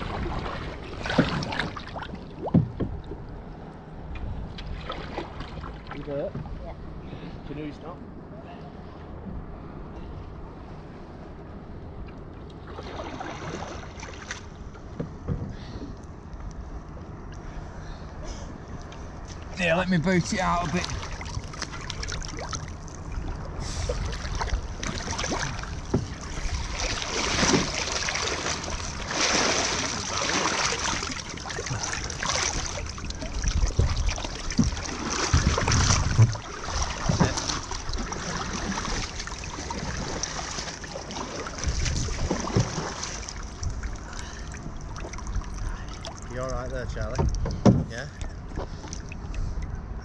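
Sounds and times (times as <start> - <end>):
canoe paddle splashing: 0.0 - 3.3, 4.4 - 6.6, 12.6 - 15.9, 18.8 - 49.8
water lapping against canoe: 0.0 - 7.4, 12.0 - 50.0.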